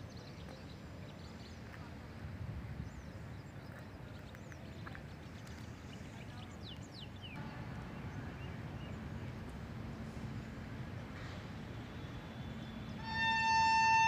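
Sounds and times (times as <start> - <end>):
wind rumble on microphone: 1.6 - 7.0.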